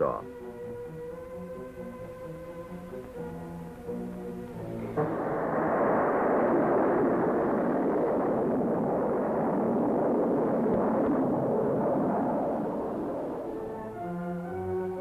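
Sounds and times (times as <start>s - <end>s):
rocket engine rumble: 0.0s - 15.0s.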